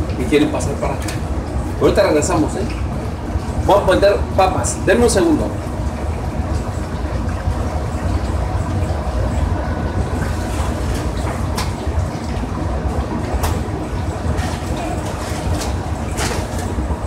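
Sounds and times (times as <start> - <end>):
kitchen equipment rumbling: 7.5 - 17.0.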